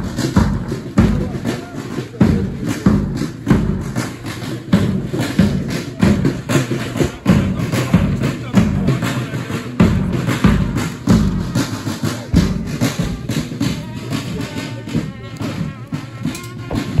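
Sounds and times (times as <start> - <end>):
bass drum: 0.0 - 9.1, 16.4 - 17.0
marching brass band playing: 0.0 - 17.0
snare drum: 0.0 - 17.0
low brass: 11.4 - 17.0.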